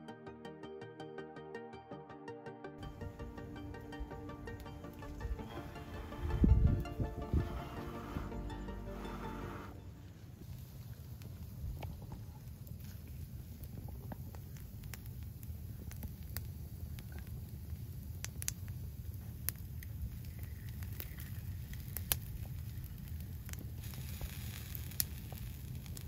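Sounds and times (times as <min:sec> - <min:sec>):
wood fire crackling: 0:02.8 - 0:26.0
sharp fire pops: 0:10.5 - 0:26.0.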